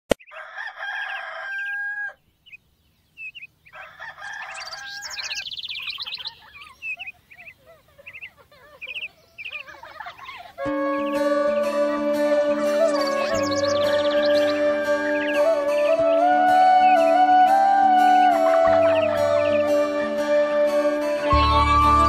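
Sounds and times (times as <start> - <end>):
birds chirping: 0.1 - 22.0
rooster crowing: 0.3 - 2.2, 3.7 - 5.5.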